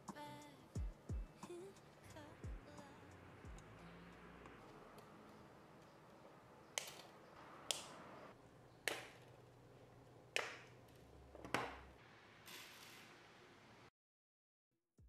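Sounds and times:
wire cutters snipping wire: 6.7 - 8.0.

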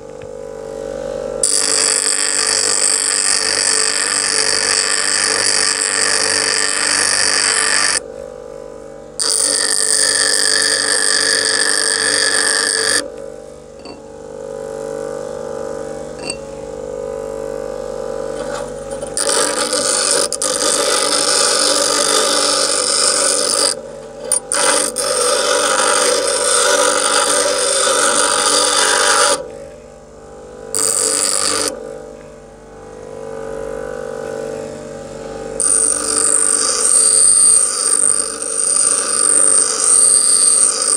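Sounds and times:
bench grinder motor hum: 0.0 - 8.3, 9.1 - 40.9
file grinding on wheel: 1.4 - 8.0, 9.2 - 13.1, 18.3 - 29.6, 30.7 - 31.8, 35.6 - 40.9.

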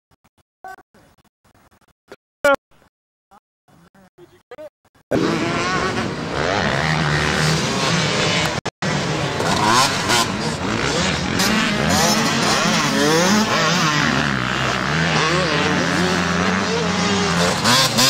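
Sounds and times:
dirt bike engines revving: 5.1 - 18.0.

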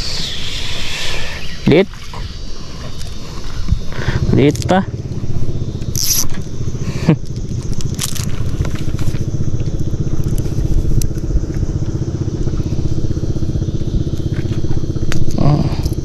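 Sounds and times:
boat engine running: 1.4 - 16.0
clicks and crackles of handling: 7.6 - 9.1.

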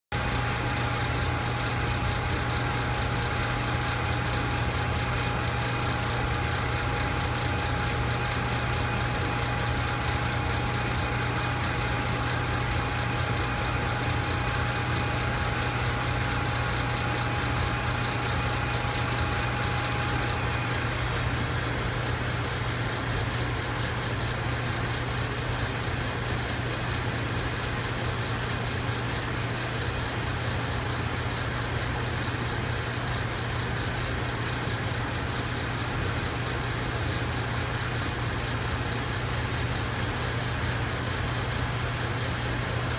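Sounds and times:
thin steady whine: 0.2 - 25.7.

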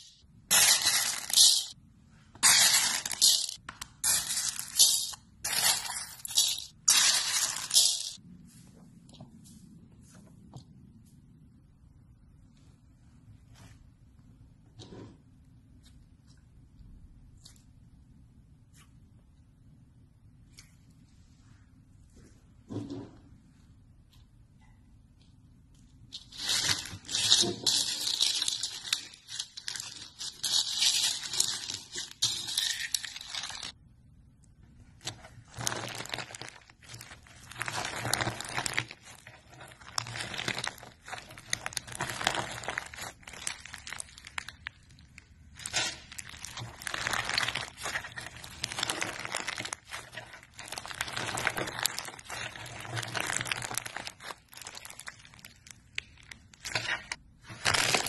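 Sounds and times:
crunchy slime squishing: 35.1 - 58.0.

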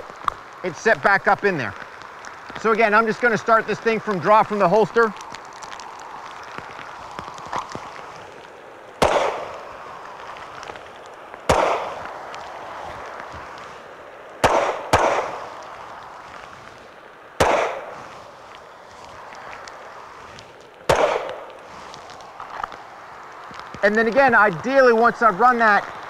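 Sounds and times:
pistol shots: 9.0 - 9.6, 11.5 - 12.0, 14.4 - 15.4, 17.4 - 17.9, 20.9 - 21.5.

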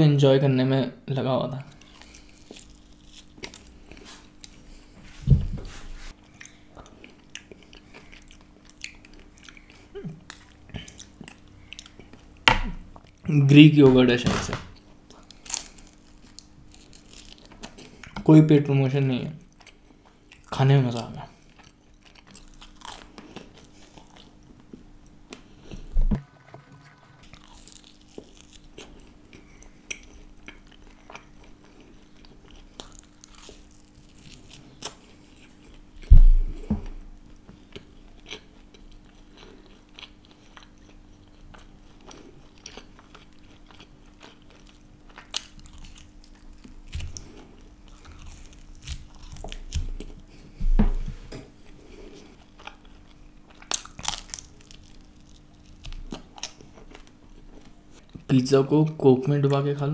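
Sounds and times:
crunchy chewing: 1.7 - 5.0, 15.1 - 18.2, 21.3 - 25.9, 26.9 - 50.6, 51.7 - 58.2.

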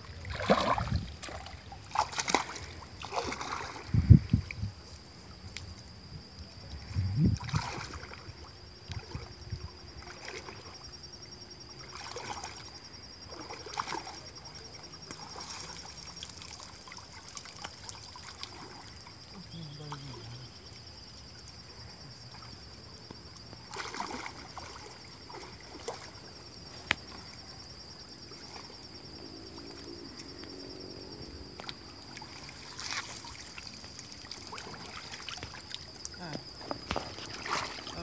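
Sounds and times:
water sloshing and splashing: 0.0 - 5.5, 6.3 - 38.0
water trickling: 0.0 - 11.2, 12.0 - 27.4, 28.2 - 38.0.

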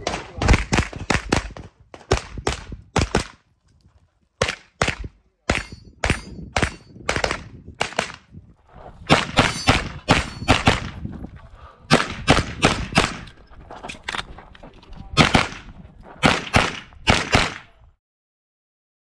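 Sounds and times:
carbine gunshots: 4.4 - 8.2, 9.1 - 11.0, 11.9 - 13.3, 15.2 - 17.7.

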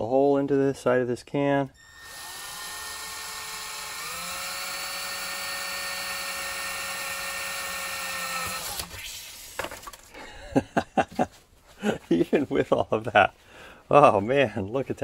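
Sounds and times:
cordless drill whining: 1.7 - 9.6.

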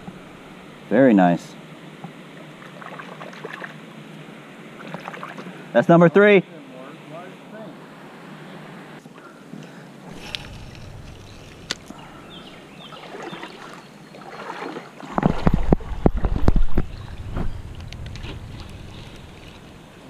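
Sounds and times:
water and kayak hull noise: 1.8 - 5.7, 10.0 - 20.0.

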